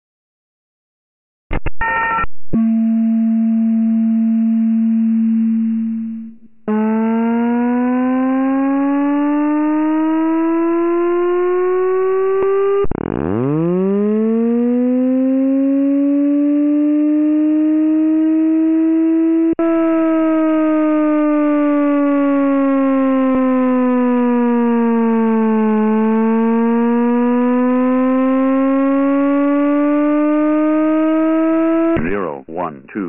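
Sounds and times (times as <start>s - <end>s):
rising siren sweep: 1.8s - 32.0s
short alarm tones: 1.8s - 32.7s
steady low alarm tone: 2.0s - 33.0s.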